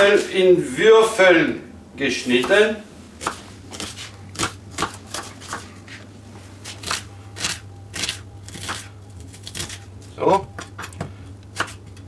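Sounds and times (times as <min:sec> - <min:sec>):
knife chopping on wooden board: 0:03.2 - 0:05.7, 0:06.6 - 0:09.8, 0:10.6 - 0:11.8.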